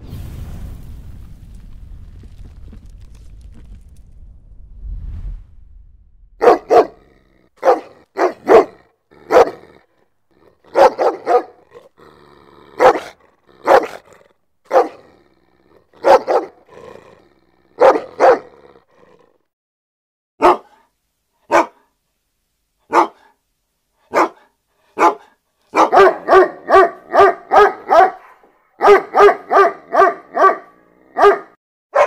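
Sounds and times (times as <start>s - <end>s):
low rumble: 0.0s - 7.3s
large dog barking: 6.4s - 19.4s, 20.4s - 20.8s, 21.5s - 21.9s, 22.9s - 23.4s, 24.1s - 32.0s.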